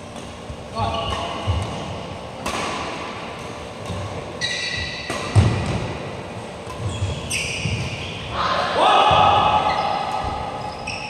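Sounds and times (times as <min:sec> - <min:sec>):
badminton racket hitting shuttlecock: 0:00.2 - 0:08.0
high squeak: 0:04.4 - 0:05.1, 0:06.8 - 0:08.4, 0:09.6 - 0:11.0.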